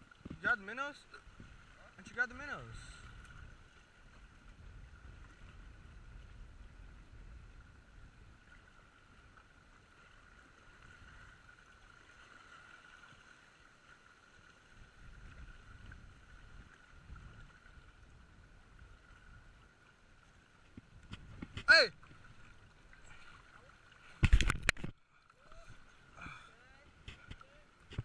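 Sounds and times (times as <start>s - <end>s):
small waves lapping on rocks: 0.0s - 28.0s
wind rumble on microphone: 2.8s - 9.6s, 14.7s - 19.7s, 20.6s - 22.7s.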